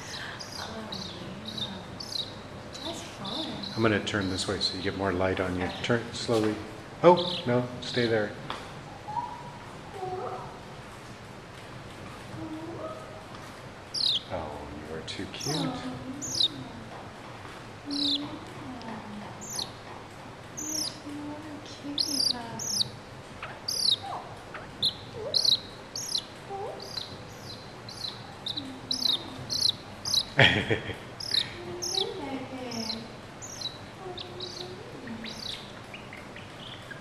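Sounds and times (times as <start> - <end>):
young mongoose chirping: 0.0 - 5.0, 8.9 - 10.6, 13.9 - 14.5, 15.4 - 16.8, 17.8 - 19.8, 20.6 - 30.4, 31.1 - 37.0.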